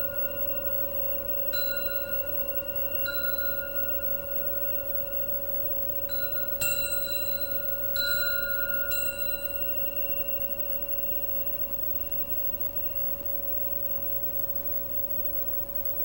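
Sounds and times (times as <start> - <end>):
ringing metal strikes: 0.0 - 12.2
steady held metal tone: 0.0 - 16.0.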